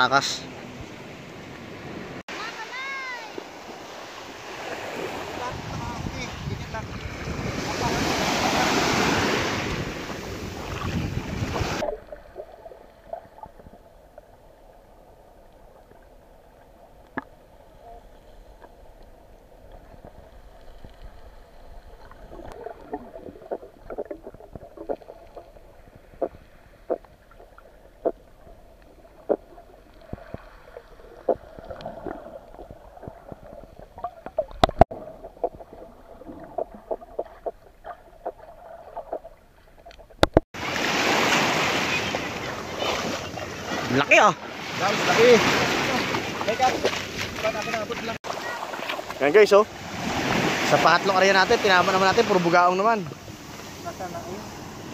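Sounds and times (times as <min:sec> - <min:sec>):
waves washing in shallows: 0:00.0 - 0:14.8, 0:19.2 - 0:39.1, 0:40.3 - 0:54.9
wind on microphone: 0:04.8 - 0:12.0
underwater clicks and taps: 0:17.0 - 0:17.4, 0:31.2 - 0:40.4
muffled underwater hush: 0:17.6 - 0:39.4.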